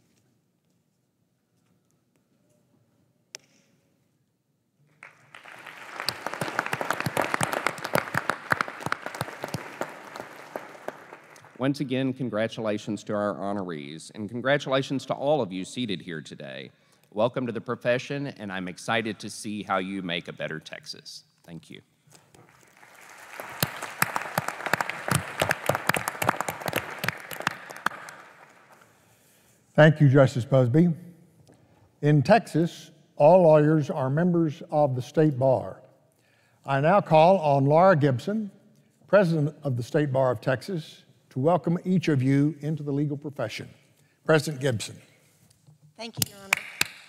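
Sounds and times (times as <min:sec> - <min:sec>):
audience applauding: 0:05.0 - 0:11.6, 0:22.4 - 0:29.0, 0:46.5 - 0:47.0.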